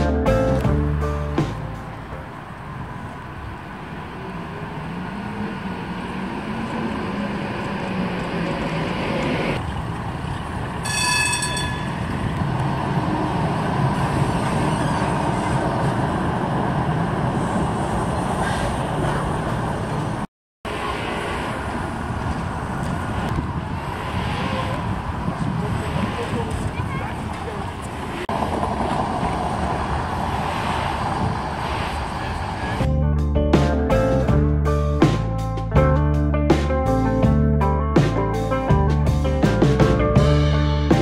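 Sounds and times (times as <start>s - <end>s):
trams rumbling on track: 0.0s - 33.0s
short pitched warning signal: 10.8s - 12.0s.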